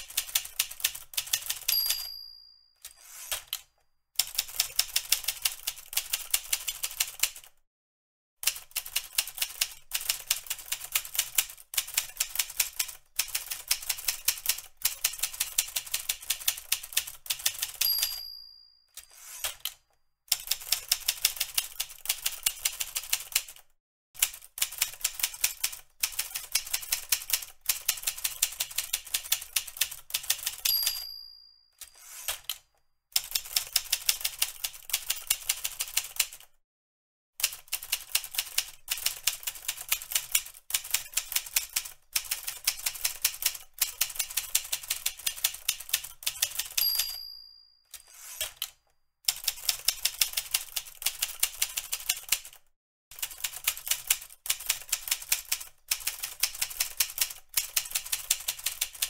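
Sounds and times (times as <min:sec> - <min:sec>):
typewriter margin bell ding: 0:01.4 - 0:03.6, 0:17.5 - 0:19.7, 0:30.4 - 0:32.5, 0:46.3 - 0:48.7.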